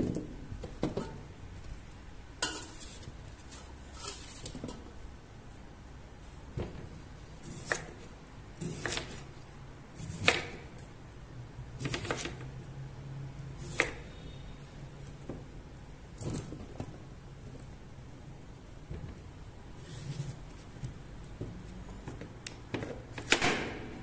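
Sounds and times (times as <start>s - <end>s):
kitchenware clicks and knocks: 0.0s - 1.3s.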